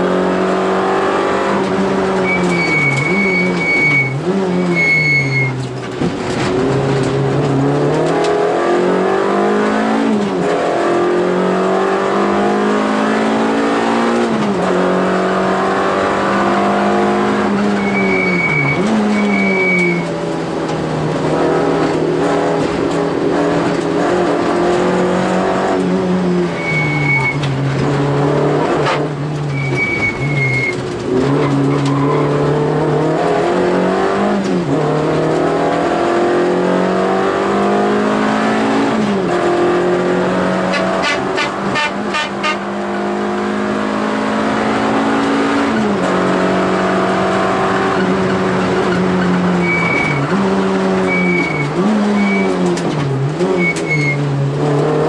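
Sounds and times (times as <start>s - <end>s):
car engine revving: 0.0s - 55.0s
high-pitched tyre squeals: 2.0s - 5.7s, 16.8s - 20.2s, 26.4s - 27.6s, 28.7s - 32.7s, 40.6s - 42.7s, 47.1s - 52.8s, 53.4s - 54.3s.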